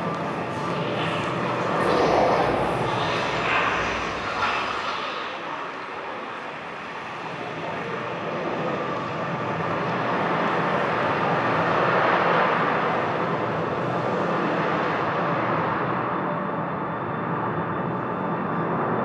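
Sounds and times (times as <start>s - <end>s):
whooshing drone: 0.0s - 6.7s.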